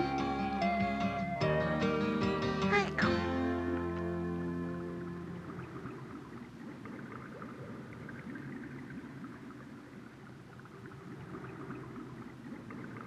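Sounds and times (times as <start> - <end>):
underwater bubbling and gurgling: 4.7 - 13.0.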